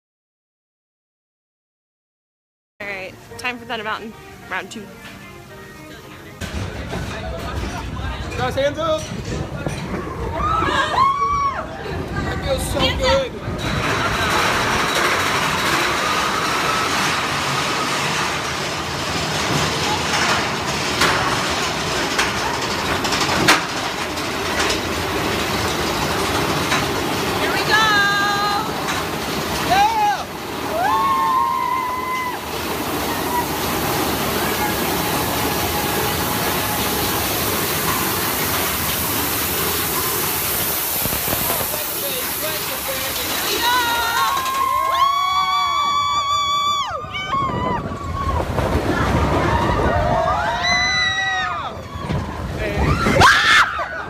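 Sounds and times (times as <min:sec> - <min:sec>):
roller coaster cars rattling: 0:02.8 - 0:54.0
sharp clacks of track: 0:13.6 - 0:30.5.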